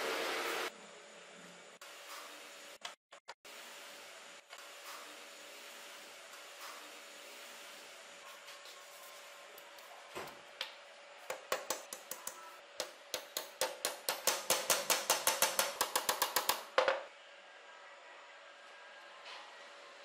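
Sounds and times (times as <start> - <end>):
small hammer tapping metal pins: 11.3 - 16.7.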